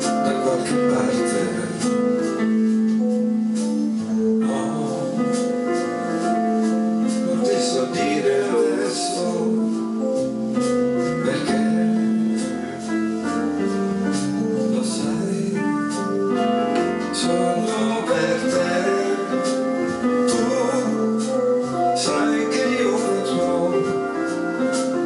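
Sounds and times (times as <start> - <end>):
electronic keyboards playing chords: 0.0 - 25.0.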